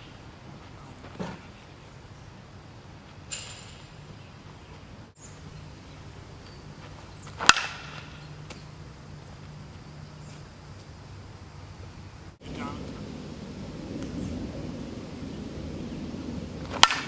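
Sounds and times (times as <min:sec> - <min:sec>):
bat cracking ball: 0:07.2 - 0:08.7, 0:16.6 - 0:17.0.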